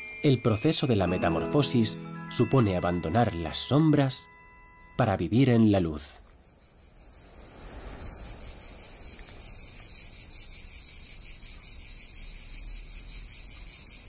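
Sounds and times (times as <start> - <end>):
cicadas buzzing: 4.3 - 14.0.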